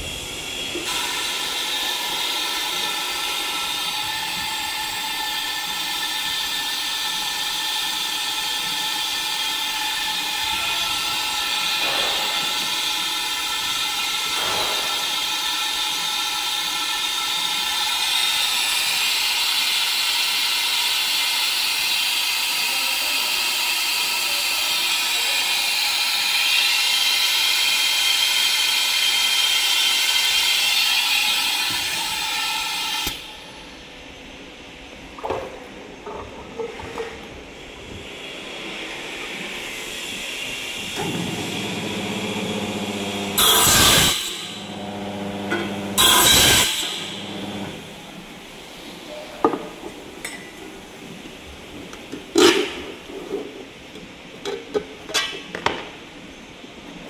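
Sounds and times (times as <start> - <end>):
vacuum pump hissing drone: 0.0 - 33.6, 37.7 - 49.2.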